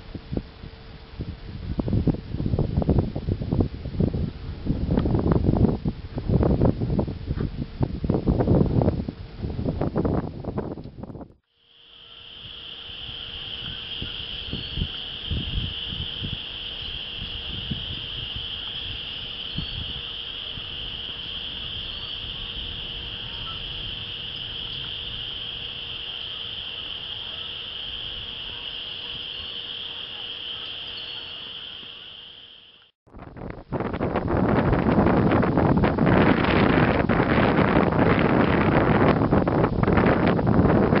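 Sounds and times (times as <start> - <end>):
wind gusts on microphone: 0.0 - 11.4, 12.0 - 41.0
frogs peeping in chorus: 11.6 - 32.9.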